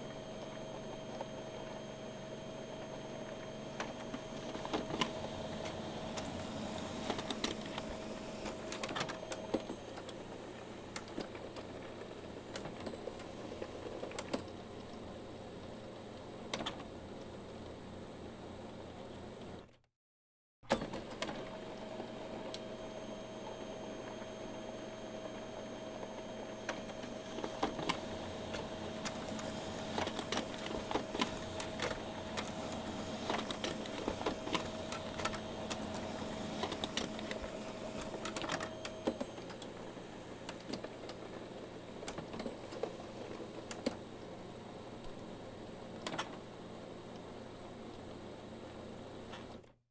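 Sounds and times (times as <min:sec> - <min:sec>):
printer whine: 0:00.0 - 0:17.0, 0:20.7 - 0:49.4
printer mechanism clicking: 0:26.7 - 0:39.7.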